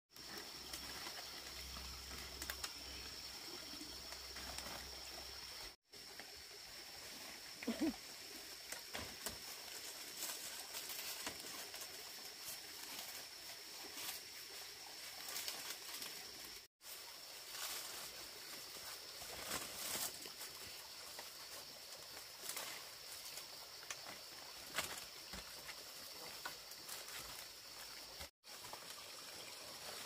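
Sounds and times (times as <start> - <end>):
dry palm leaves rustling: 9.1 - 23.6.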